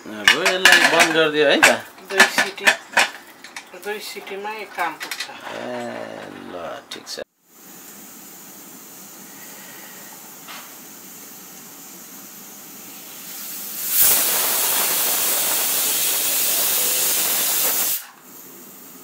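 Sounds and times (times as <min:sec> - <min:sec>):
pressure cooker whistle hissing: 0:07.7 - 0:19.0.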